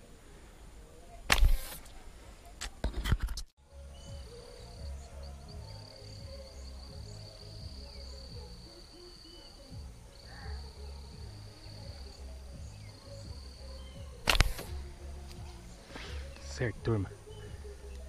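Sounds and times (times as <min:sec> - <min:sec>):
slingshot snap: 0:01.3 - 0:02.0, 0:14.2 - 0:16.2
background music with a beat: 0:03.7 - 0:08.7, 0:09.7 - 0:18.0
high insect drone: 0:03.7 - 0:18.0.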